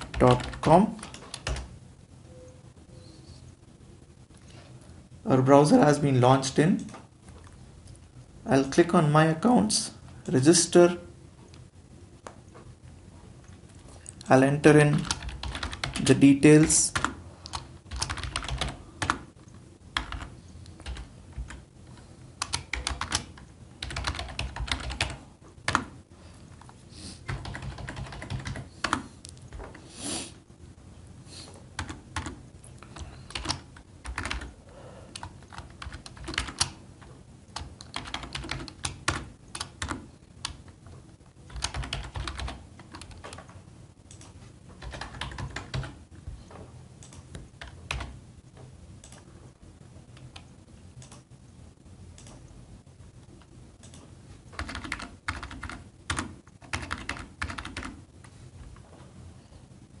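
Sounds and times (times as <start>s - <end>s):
computer keyboard typing: 0.0s - 1.7s, 14.8s - 26.0s, 27.3s - 29.8s, 31.8s - 36.8s, 37.5s - 40.8s, 41.4s - 46.0s, 47.0s - 48.2s, 49.0s - 49.3s, 53.8s - 58.0s.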